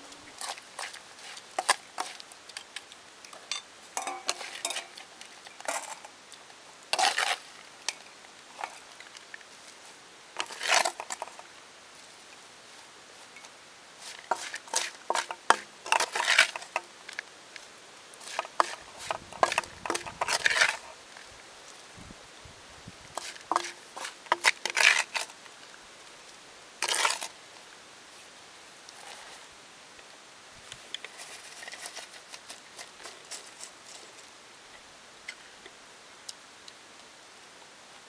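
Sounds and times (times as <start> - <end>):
metal spatula scraping wok: 0.4 - 2.2, 3.5 - 6.1, 6.9 - 7.4, 10.4 - 11.4, 14.0 - 16.8, 18.2 - 21.0, 23.2 - 25.3, 26.8 - 27.3
beetles clattering against metal: 3.3 - 6.1, 10.4 - 11.4, 14.0 - 17.0, 18.2 - 21.0, 23.2 - 25.3.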